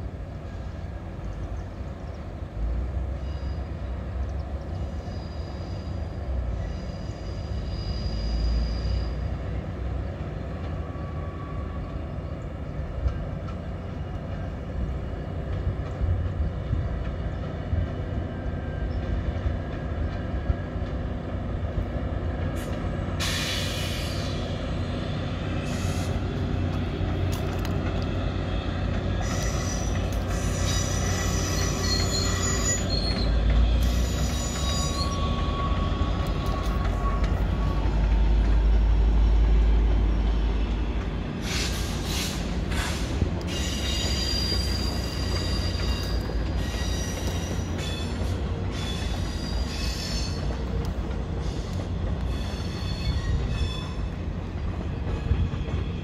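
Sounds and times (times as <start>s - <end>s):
locomotive engine drone: 0.0s - 56.0s
wheels squealing on rails: 0.4s - 56.0s.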